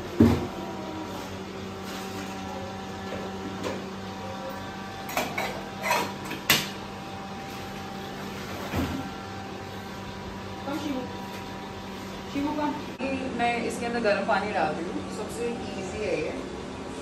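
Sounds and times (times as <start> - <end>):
steady electrical hum: 0.0 - 17.0
pots and utensils clattering: 5.0 - 6.8.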